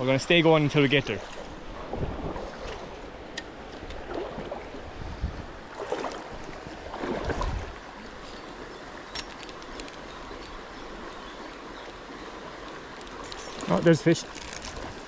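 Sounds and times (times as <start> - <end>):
wind buffeting microphone: 1.4 - 3.2, 3.8 - 7.9.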